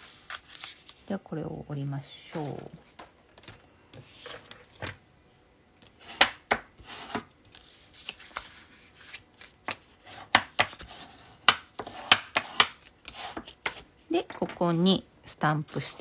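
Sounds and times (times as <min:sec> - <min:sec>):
paper rustling: 0:00.0 - 0:01.1, 0:06.8 - 0:11.3
bone folder scraping paper: 0:06.0 - 0:13.8.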